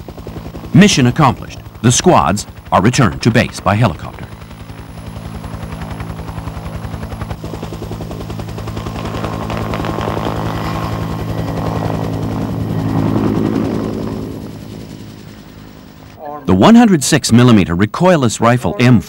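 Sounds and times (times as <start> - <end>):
helicopter rotor chopping: 0.0 - 17.7.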